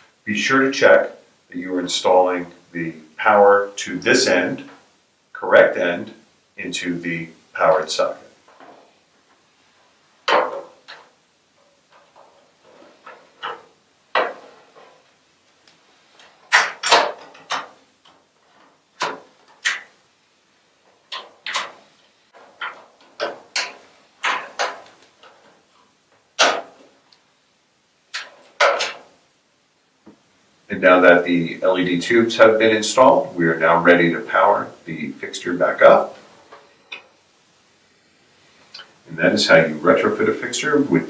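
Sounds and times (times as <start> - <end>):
clicks and knocks of tubes seated: 10.2 - 20.1, 20.8 - 27.2, 28.1 - 29.1.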